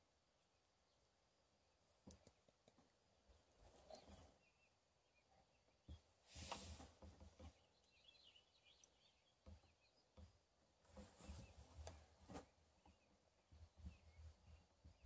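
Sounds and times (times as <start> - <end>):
faint high chirps: 7.5 - 10.2.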